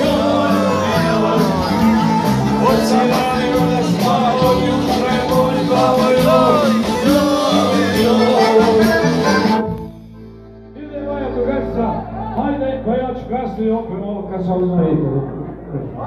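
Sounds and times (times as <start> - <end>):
steady drum beat: 0.0 - 9.6
live folk band playing: 0.0 - 14.1.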